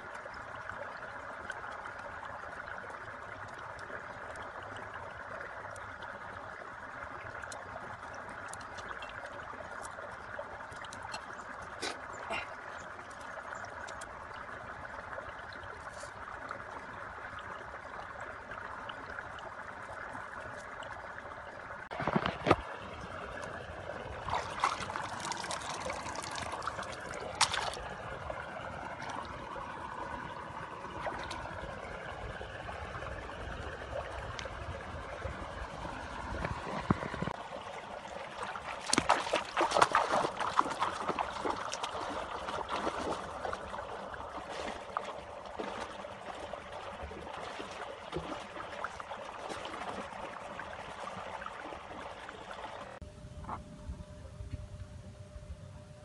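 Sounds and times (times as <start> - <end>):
stream water trickling: 0.0 - 53.0
sharp knocks and splashes: 21.9 - 22.8, 24.2 - 27.9, 38.4 - 50.3
footsteps wading through water: 21.9 - 31.9, 35.3 - 53.0.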